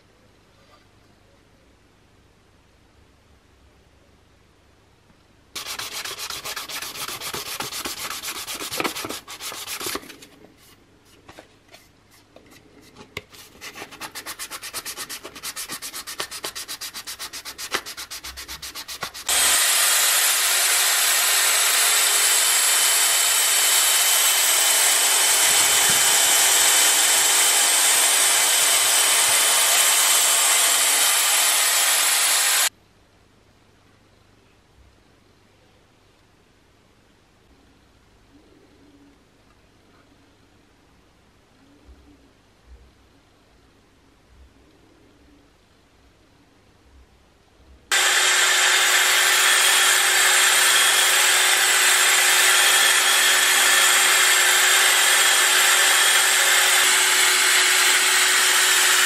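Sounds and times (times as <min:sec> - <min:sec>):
hand sanding plastic: 0:05.6 - 0:19.9
electric rotary polisher hissing: 0:15.4 - 0:23.2, 0:25.0 - 0:32.7, 0:47.9 - 0:59.0.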